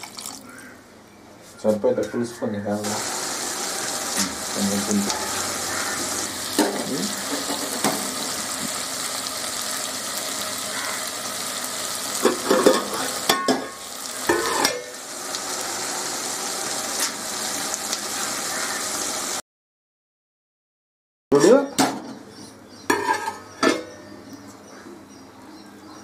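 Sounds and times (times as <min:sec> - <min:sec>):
curry sizzling in a pot: 0:02.8 - 0:19.4.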